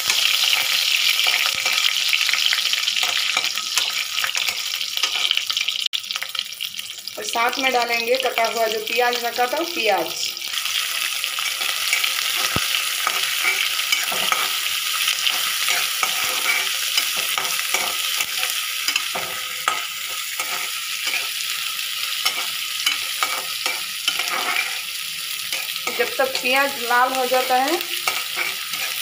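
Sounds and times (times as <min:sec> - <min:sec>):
onion sizzling in hot oil: 0:00.0 - 0:29.0
spatula scraping and tapping pan: 0:11.4 - 0:14.6, 0:15.2 - 0:21.4, 0:22.2 - 0:24.8, 0:28.0 - 0:29.0.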